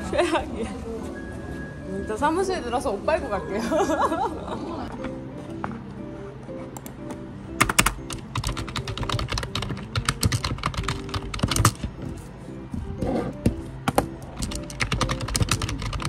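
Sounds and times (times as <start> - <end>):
soft background music: 0.0 - 16.0
keyboard key clicks: 7.6 - 11.9, 13.9 - 16.0.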